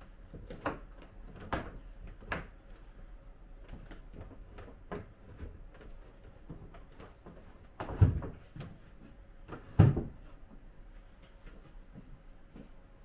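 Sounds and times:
wooden cabinet knocking on floorboards: 0:09.5 - 0:10.3.

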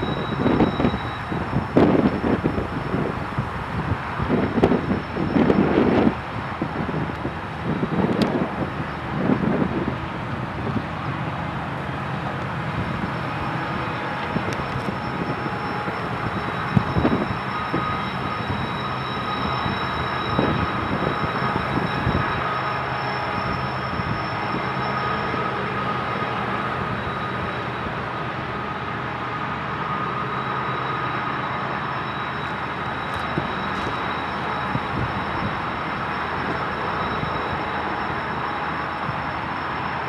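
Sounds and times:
freight train rumbling: 0:00.0 - 0:40.0
thin high tones: 0:12.8 - 0:28.0.

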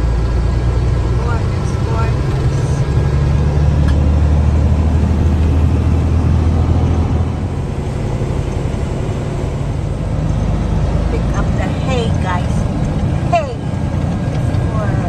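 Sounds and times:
road noise inside cab: 0:00.0 - 0:15.0
truck diesel engine running: 0:00.0 - 0:15.0.

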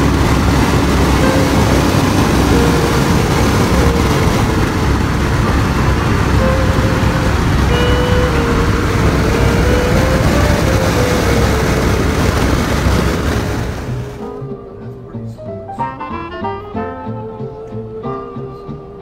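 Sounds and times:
aircraft engines roaring: 0:00.0 - 0:14.3.

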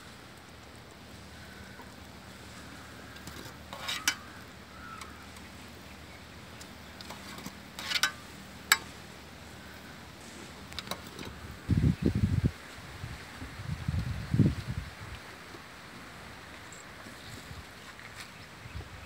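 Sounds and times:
wire skimmer clinking on metal plate: 0:03.2 - 0:04.3, 0:07.0 - 0:09.0.

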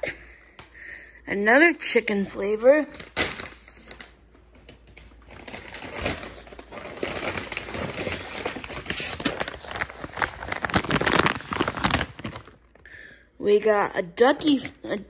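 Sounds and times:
plastic bags crinkling: 0:02.5 - 0:12.9.

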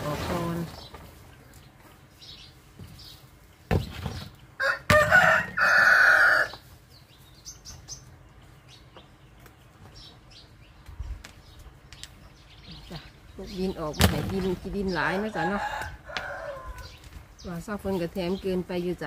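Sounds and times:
rooster crowing: 0:04.6 - 0:06.6, 0:15.2 - 0:17.0.

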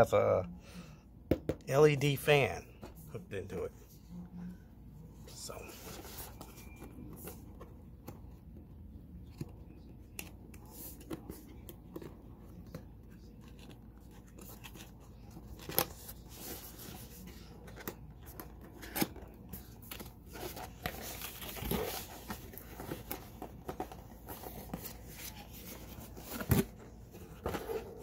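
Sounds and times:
cardboard and plastic rustling: 0:09.2 - 0:28.0.

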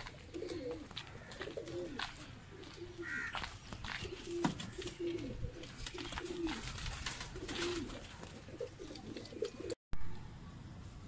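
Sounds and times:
pigeons cooing: 0:00.0 - 0:09.8.

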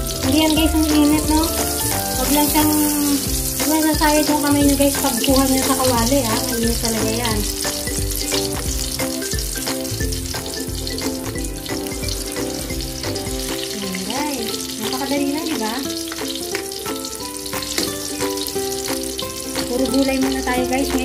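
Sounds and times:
low music beat: 0:00.0 - 0:14.1
omelette sizzling in hot oil: 0:00.0 - 0:20.9
background music with held notes: 0:00.0 - 0:21.0.

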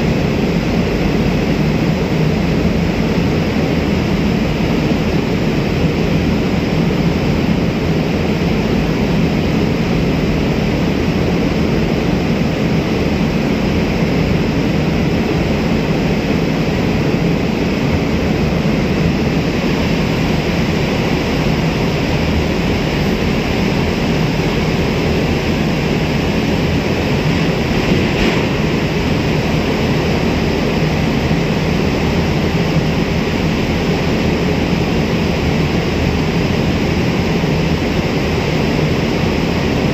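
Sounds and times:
boat engine drone: 0:00.0 - 0:39.9
wind and water rushing: 0:09.9 - 0:39.9.

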